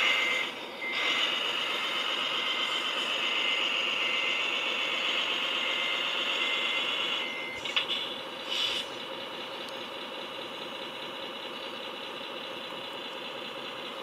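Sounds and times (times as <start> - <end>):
electric motor and gearbox whining: 0.0 - 11.0.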